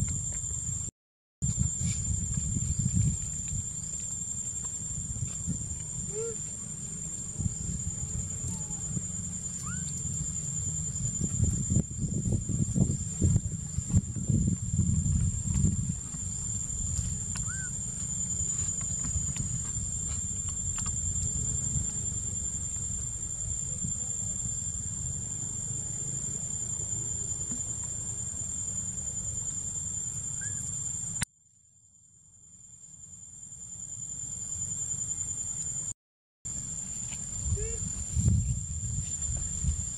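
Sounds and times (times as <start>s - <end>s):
high-pitched insect drone: 1.5s - 31.2s, 32.3s - 39.9s
brief squeak: 9.6s - 10.0s.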